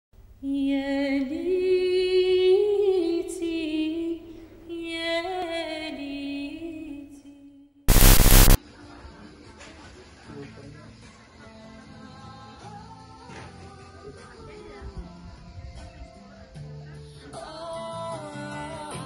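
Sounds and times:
loud hiss-like noise burst: 7.9s - 8.6s.

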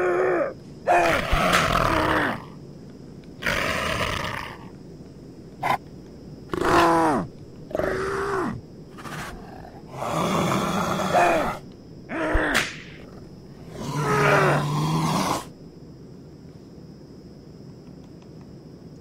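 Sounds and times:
big cat snarling and growling: 0.0s - 2.6s, 3.4s - 4.7s, 6.5s - 15.5s.

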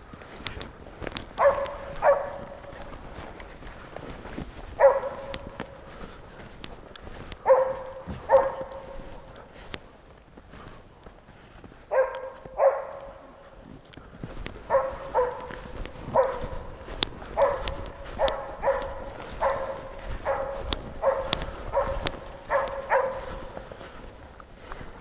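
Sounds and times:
dog barking: 1.4s - 3.2s, 4.8s - 5.9s, 7.4s - 9.8s, 11.9s - 13.6s, 14.6s - 23.7s.

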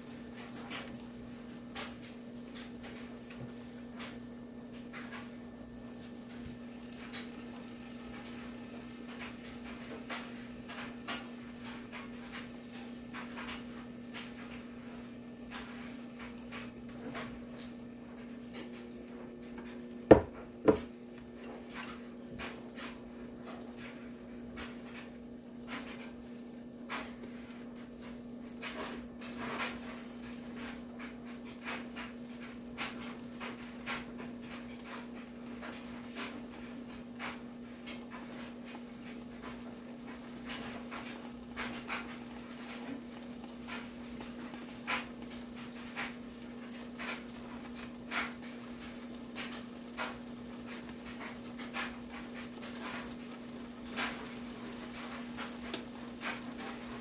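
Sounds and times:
skillet low hum: 0.0s - 57.0s
sausage popping and crackling: 23.9s - 57.0s.

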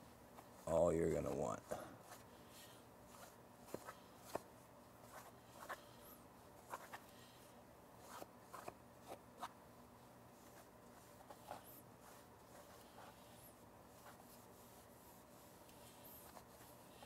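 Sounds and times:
pad wiping over metal: 8.0s - 17.0s.

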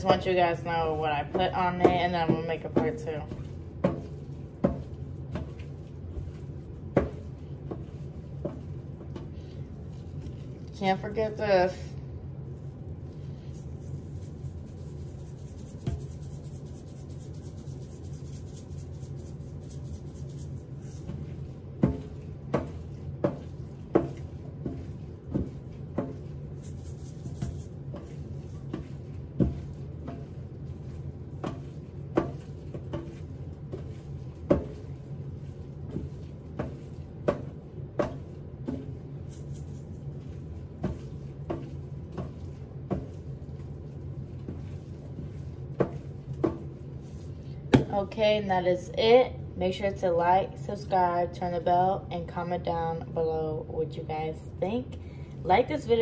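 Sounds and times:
steady low hum: 0.0s - 56.0s
spice container tapping: 13.6s - 21.2s, 21.8s - 30.4s.

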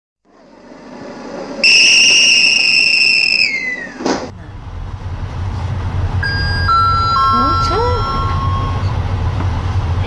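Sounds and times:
train whistle: 1.6s - 4.0s.

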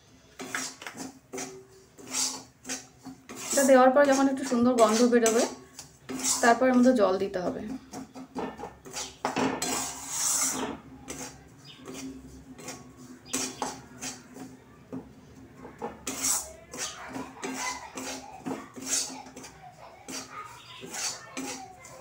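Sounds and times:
metal spatula scraping a pan: 0.3s - 14.6s, 15.6s - 22.0s.

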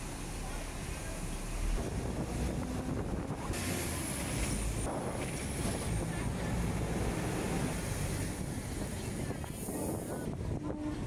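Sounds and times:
tram rumbling on tracks: 0.0s - 11.0s
wind on microphone: 1.8s - 3.6s, 8.1s - 11.0s.

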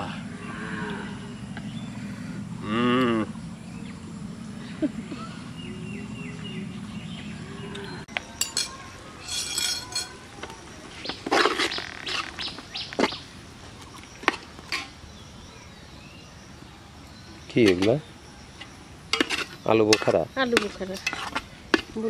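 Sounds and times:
birds chirping: 0.0s - 22.0s
metal ladle scraping a pot: 8.4s - 10.2s, 19.1s - 21.8s.

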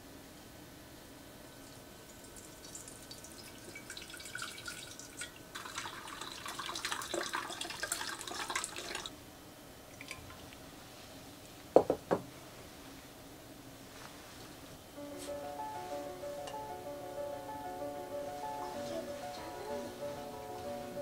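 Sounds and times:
water drips: 1.7s - 9.1s, 9.9s - 10.6s
water pouring through strainer: 2.1s - 9.1s.

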